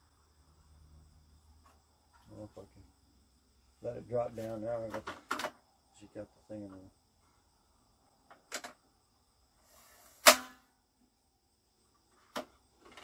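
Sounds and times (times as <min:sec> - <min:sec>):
short scrape: 0:09.6 - 0:10.6
loud sharp clack with ring: 0:10.2 - 0:10.6.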